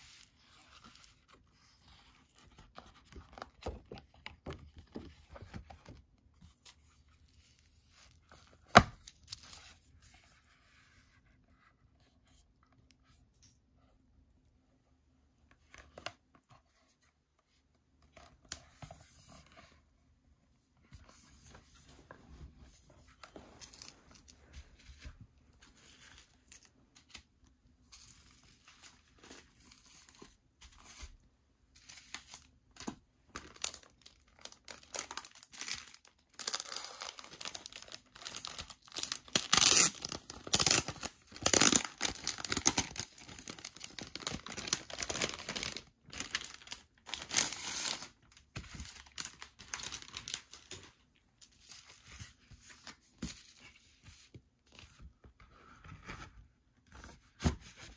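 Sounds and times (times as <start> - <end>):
plastic wrapping crinkling: 32.2 - 51.0.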